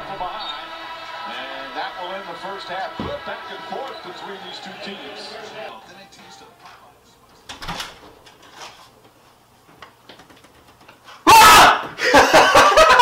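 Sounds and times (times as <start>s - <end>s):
young men shouting loudly: 11.2s - 11.9s.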